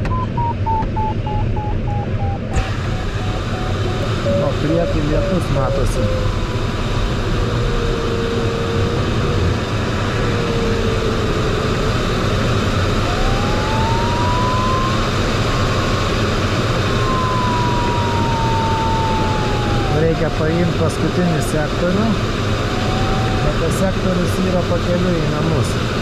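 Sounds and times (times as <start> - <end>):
airflow rushing in cockpit: 0.0 - 26.0
variometer continuous tone: 0.0 - 26.0.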